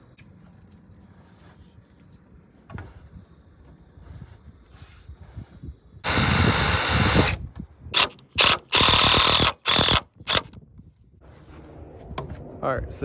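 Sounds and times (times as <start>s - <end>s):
cordless drill driving screws: 6.0s - 7.4s, 8.0s - 10.6s.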